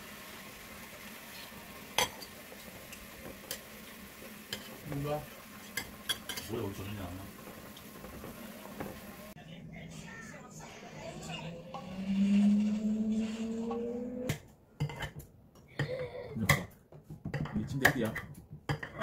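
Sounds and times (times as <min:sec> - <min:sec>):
faint sizzle from hot pan: 0:00.0 - 0:09.4
utensils scraping a frying pan: 0:04.5 - 0:04.8, 0:11.6 - 0:15.2.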